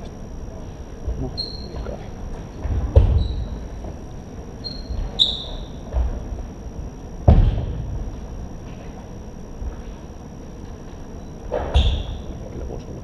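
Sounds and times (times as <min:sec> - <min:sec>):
heavy thumps on floor: 0:02.6 - 0:03.4, 0:07.2 - 0:08.0.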